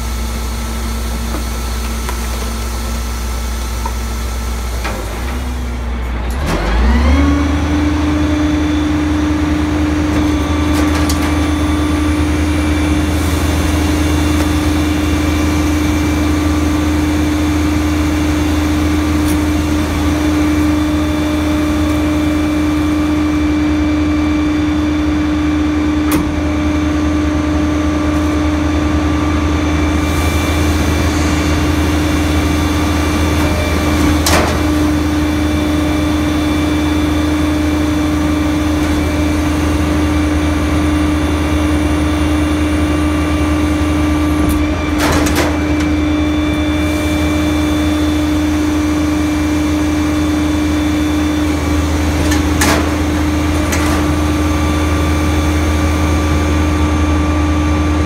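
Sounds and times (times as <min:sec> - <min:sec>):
garbage truck engine humming: 0:00.0 - 0:58.0
metal clanks against hopper: 0:31.0 - 0:35.2, 0:52.2 - 0:54.4.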